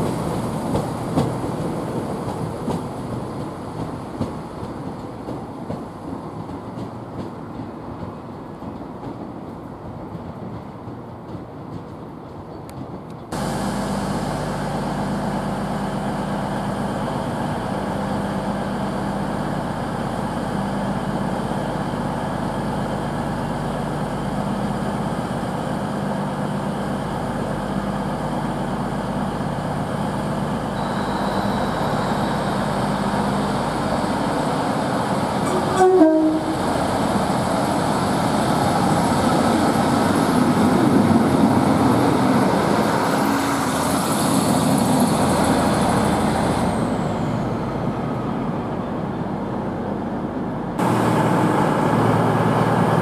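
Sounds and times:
rough train noise: 0.0s - 53.0s
diesel train engine idling: 13.3s - 53.0s.

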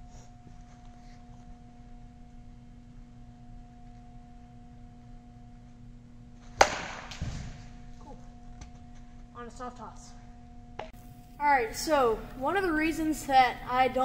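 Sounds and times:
faint steady hum: 0.0s - 14.0s
bat cracking a ball: 6.4s - 7.8s.

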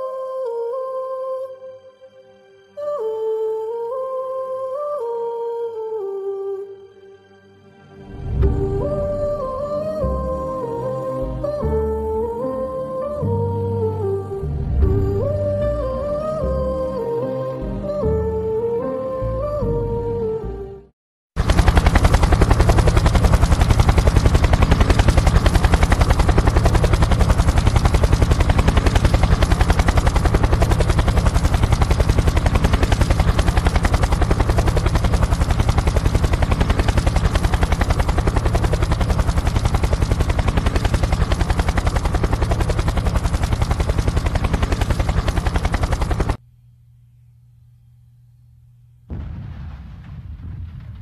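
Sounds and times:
helicopter engine drone: 8.3s - 12.6s, 21.4s - 46.4s
helicopter rotor chop: 21.4s - 46.4s.

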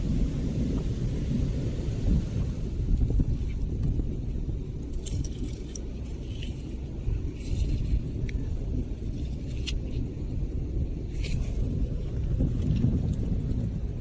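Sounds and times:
steady low rumble: 0.0s - 14.0s
shells and coral clicking: 4.8s - 10.1s.

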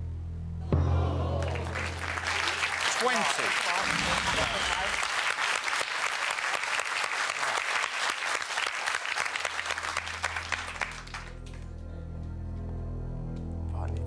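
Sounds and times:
audience applauding: 1.4s - 11.8s
low steady music note: 11.2s - 14.0s.

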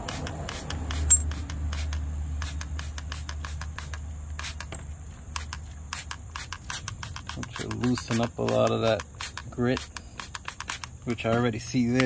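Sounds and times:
trigger spray bottle spritzing: 0.0s - 12.0s.

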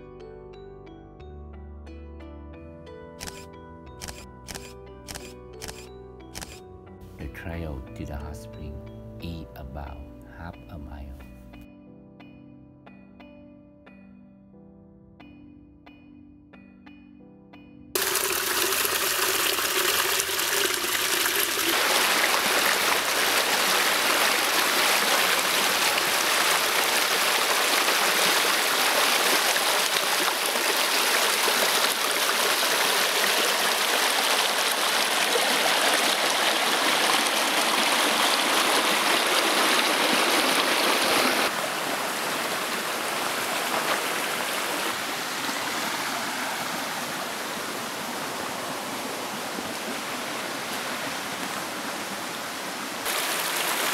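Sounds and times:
small cascade pouring: 18.0s - 41.5s, 53.0s - 53.9s
river rushing over rocks: 18.0s - 53.9s.

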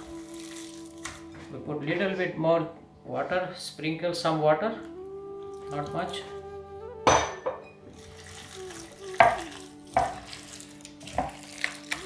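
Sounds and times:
hand mixing wet batter: 7.9s - 12.0s.

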